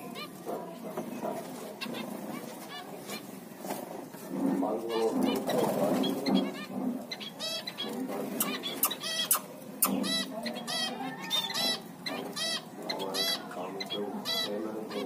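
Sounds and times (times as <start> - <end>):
rough calls of other birds: 0.0 - 3.6, 4.2 - 15.0
finches calling: 4.9 - 15.0.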